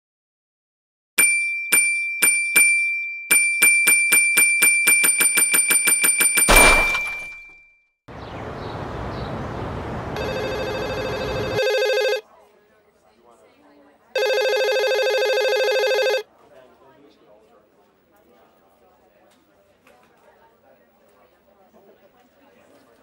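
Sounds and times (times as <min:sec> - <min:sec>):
sudden crash: 0:06.5 - 0:07.4
service bell ringing: 0:10.2 - 0:12.1.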